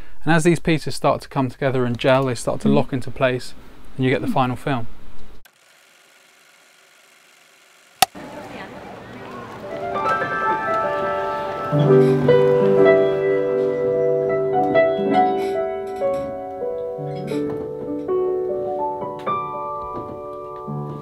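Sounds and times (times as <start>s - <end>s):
piano chords and melody: 9.6s - 21.0s.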